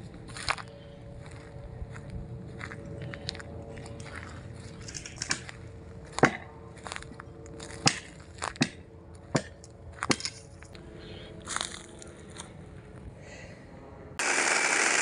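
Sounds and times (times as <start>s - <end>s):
dry branches cracking: 3.1s - 8.7s.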